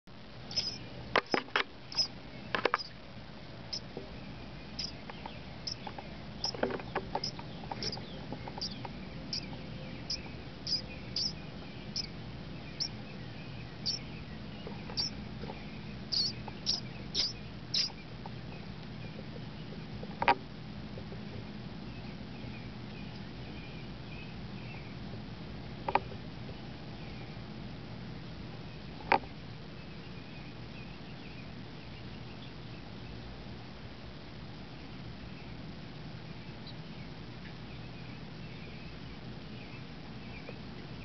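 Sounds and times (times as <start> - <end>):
baby bird begging peeps: 0.5 - 2.1, 4.7 - 5.0, 5.6 - 6.6, 7.2 - 13.0, 13.7 - 14.2, 14.8 - 15.2, 16.0 - 18.1.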